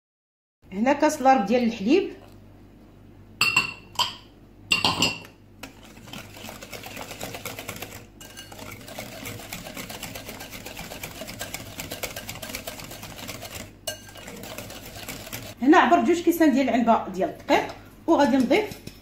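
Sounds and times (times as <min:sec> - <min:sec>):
whisk beating batter in bowl: 0:05.6 - 0:15.6.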